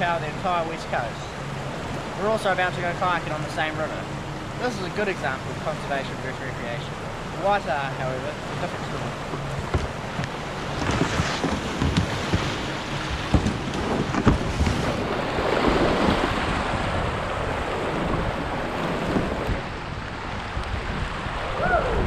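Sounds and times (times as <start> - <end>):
river water rushing: 0.0 - 22.0
sharp knocks: 9.3 - 14.8
wind on microphone: 9.3 - 22.0.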